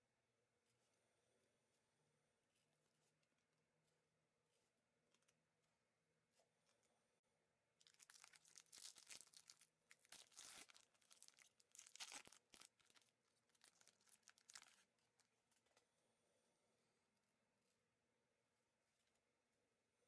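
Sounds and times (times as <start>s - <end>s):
foil wrapper tearing and crinkling: 7.8s - 13.0s, 13.6s - 14.8s.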